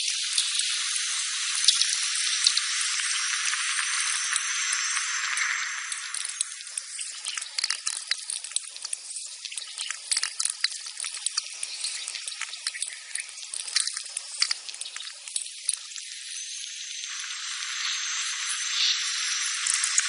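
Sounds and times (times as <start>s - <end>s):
quick irregular clicks and crackles: 6.2s - 16.0s
steady high hiss: 16.3s - 20.0s.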